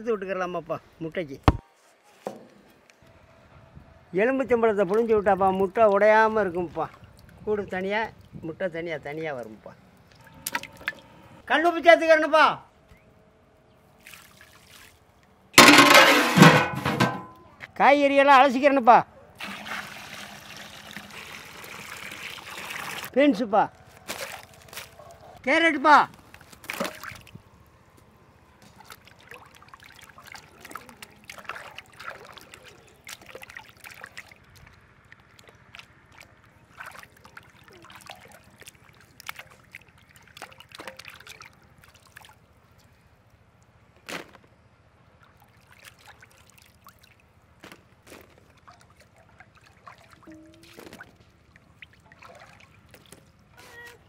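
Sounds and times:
small splashes and trickles: 0:04.8 - 0:08.5, 0:13.7 - 0:16.1, 0:19.4 - 0:23.1, 0:23.9 - 0:25.0, 0:26.1 - 0:44.0, 0:44.8 - 0:54.0
hands sloshing vegetables in water: 0:14.0 - 0:17.1, 0:24.0 - 0:25.1, 0:26.2 - 0:27.4, 0:28.5 - 0:43.0, 0:45.1 - 0:54.0.

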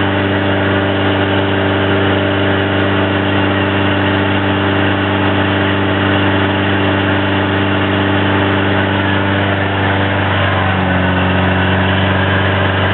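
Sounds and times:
engine driving generator hum: 0:00.0 - 0:12.9.

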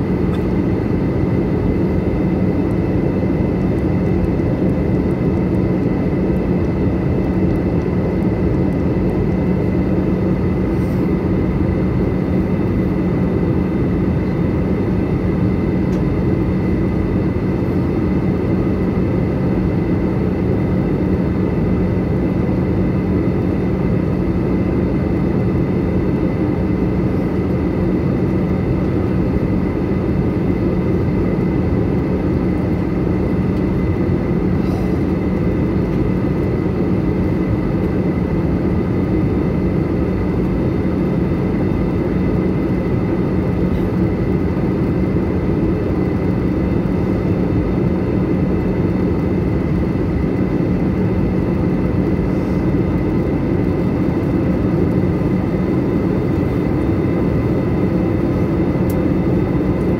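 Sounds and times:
airflow rushing in aircraft cabin: 0:00.0 - 0:59.9
jet engines humming: 0:00.0 - 0:59.9.

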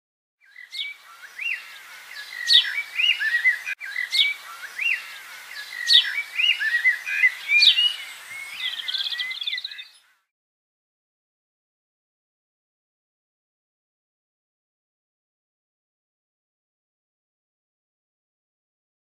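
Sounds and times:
bird trill: 0:00.4 - 0:10.2
birds chirping and whistling: 0:00.5 - 0:10.1.

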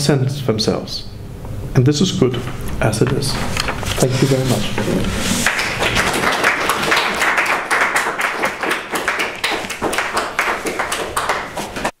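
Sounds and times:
audience applauding: 0:05.4 - 0:12.0.

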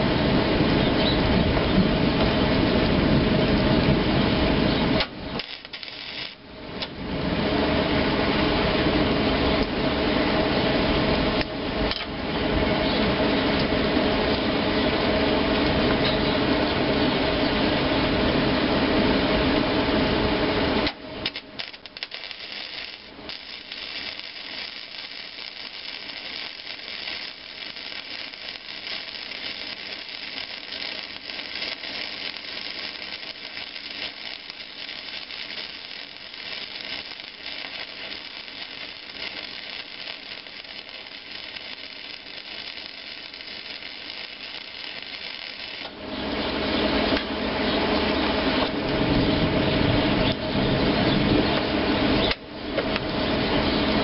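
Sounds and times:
low running noise: 0:00.0 - 0:54.0
welder arc crackling: 0:05.0 - 0:07.0, 0:20.8 - 0:46.0.

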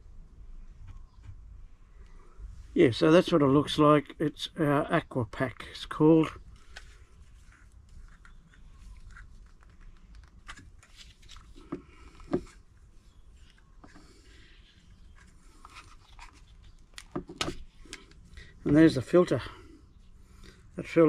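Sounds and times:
plastic rubbing and clicks: 0:06.4 - 0:18.8.

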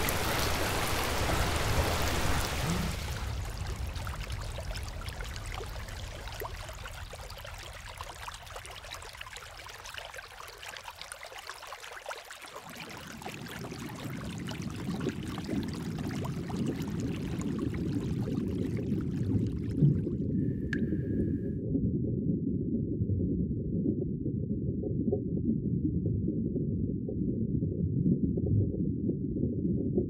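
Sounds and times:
water dripping down rock: 0:00.0 - 0:20.1.

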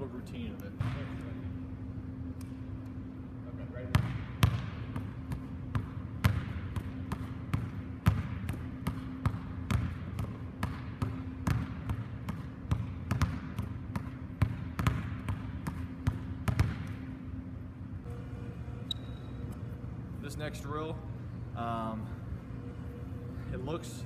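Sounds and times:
basketballs bouncing on hardwood floor: 0:00.8 - 0:01.2, 0:03.8 - 0:17.0.

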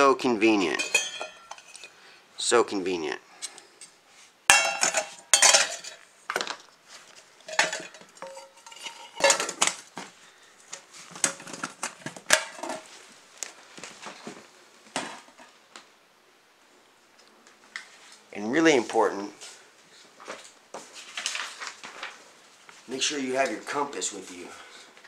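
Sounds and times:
metal pots clanking together: 0:00.7 - 0:01.8, 0:04.5 - 0:06.0, 0:07.5 - 0:09.8, 0:12.3 - 0:12.8.

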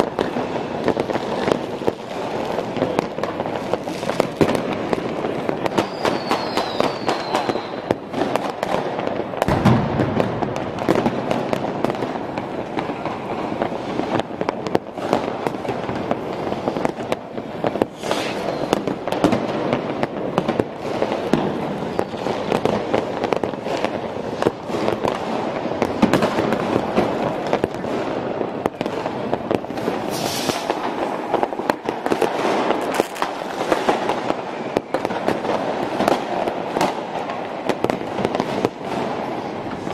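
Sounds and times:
fireworks and firecrackers banging: 0:00.0 - 0:39.9
whistling firework: 0:00.0 - 0:39.9
deep firework boom: 0:09.5 - 0:10.8.

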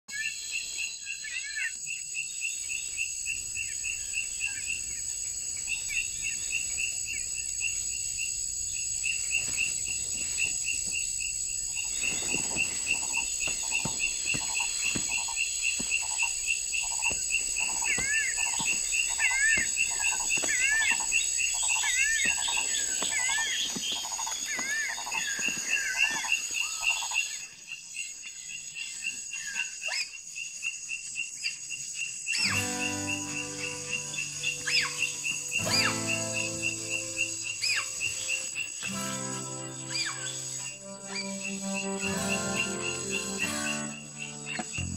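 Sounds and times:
looping whistled calls: 0:32.3 - 0:44.9
fast repeating chirps: 0:32.4 - 0:44.9
high-pitched insect drone: 0:32.4 - 0:44.9
slow pulsing call: 0:32.4 - 0:44.9.

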